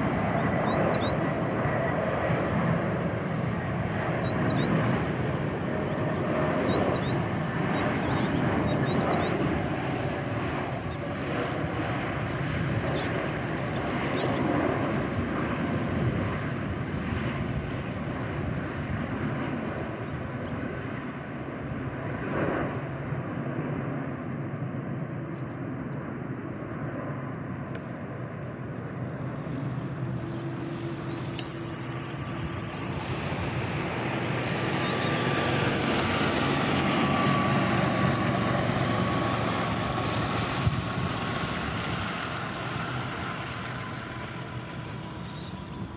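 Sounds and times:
jet airliner roar: 0.0 - 45.9
jet engine high whine: 0.0 - 45.9.

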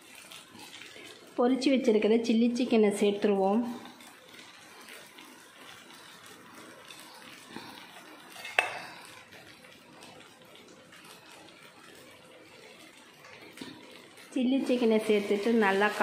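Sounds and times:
steel bowl clinking on cookware: 8.4 - 8.9.

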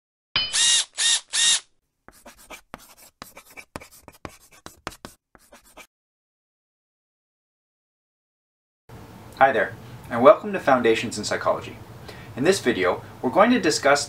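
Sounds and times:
pen scratching on paper: 2.1 - 5.9.

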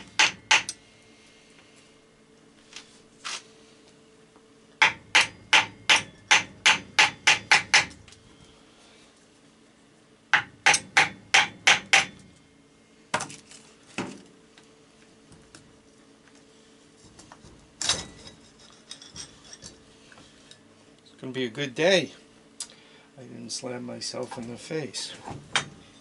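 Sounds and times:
hammer striking engine metal: 0.0 - 0.8, 4.8 - 8.0, 10.3 - 12.4.

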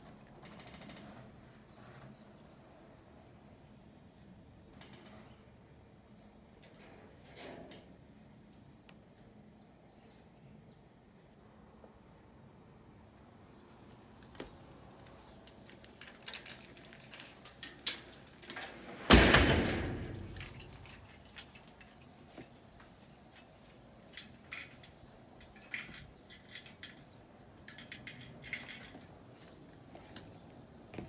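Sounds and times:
loud ringing bang: 19.1 - 20.5.

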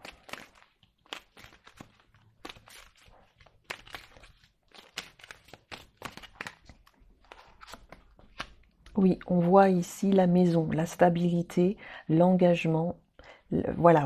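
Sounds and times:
cards clicking and rustling: 0.0 - 9.5.

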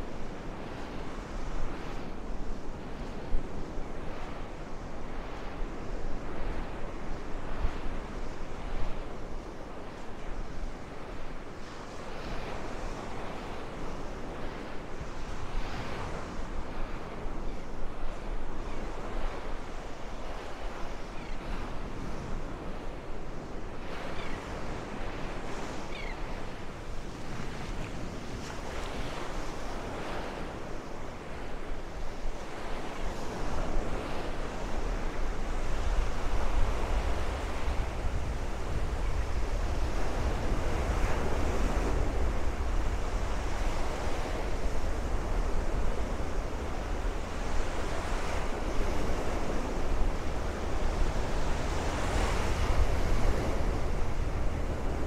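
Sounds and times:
wind rumbling on microphone: 0.0 - 55.0
surf washing onto sandy beach: 26.6 - 55.0.

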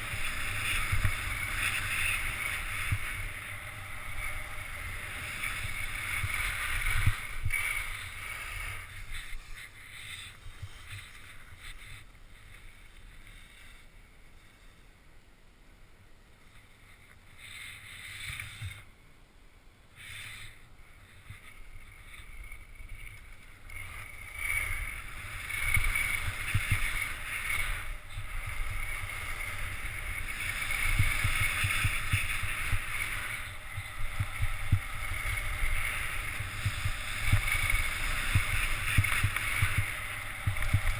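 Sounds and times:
skis scraping over snow: 0.0 - 14.9, 16.4 - 18.9, 20.0 - 40.9
wind on microphone: 24.3 - 40.9.

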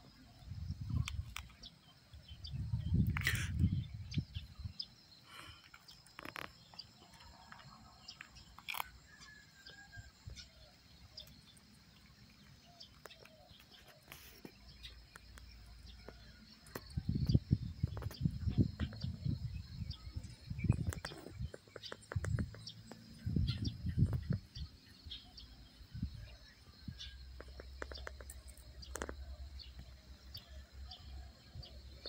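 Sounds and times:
wind buffeting microphone: 0.4 - 1.4, 2.2 - 4.8, 16.8 - 25.2.

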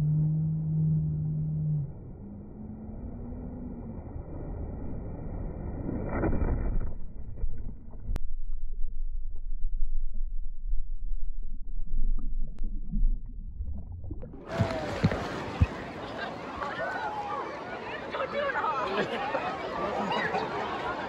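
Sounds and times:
muffled underwater water churning: 3.8 - 17.6.

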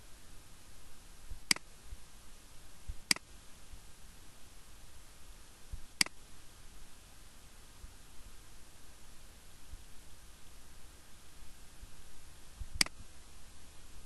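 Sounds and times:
faint steady hiss: 0.0 - 14.0
mouse button clicks: 12.8 - 13.0.

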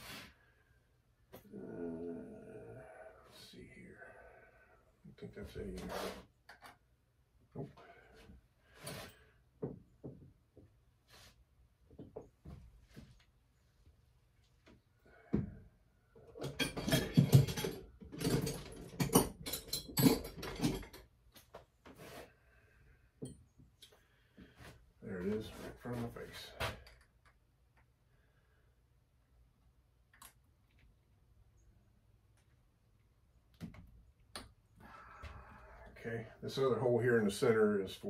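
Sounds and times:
metal tools clattering on workbench: 16.4 - 21.1.

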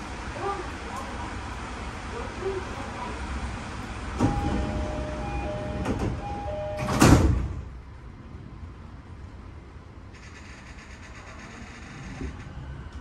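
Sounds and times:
sliding doors shutting with thud: 4.0 - 7.7
two-note door chime: 4.3 - 7.1.

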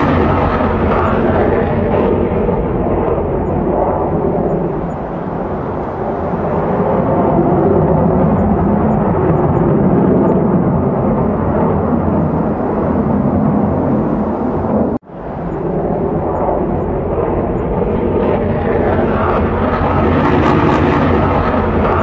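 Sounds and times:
strong wind roaring: 0.0 - 22.0.

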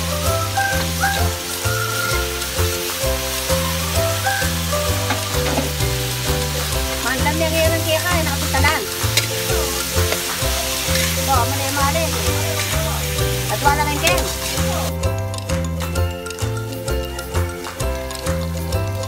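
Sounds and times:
background music with bass: 0.0 - 19.0
beans sizzling in wok: 0.0 - 19.0
spatula scraping wok: 8.1 - 14.9.

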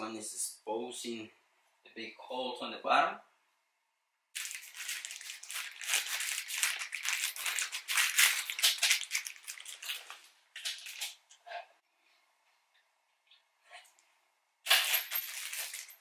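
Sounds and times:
plastic bag crinkling: 4.4 - 11.2.

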